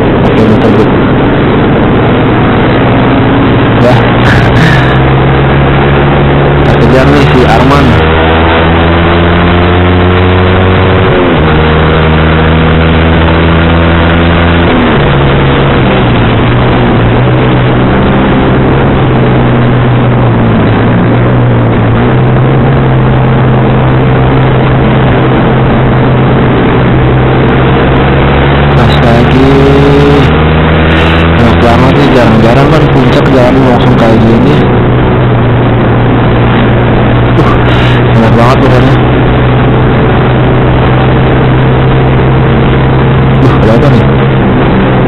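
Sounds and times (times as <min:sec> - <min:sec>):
motorcycle engine shifting gears: 0:00.0 - 0:45.0
wind noise: 0:00.0 - 0:45.0.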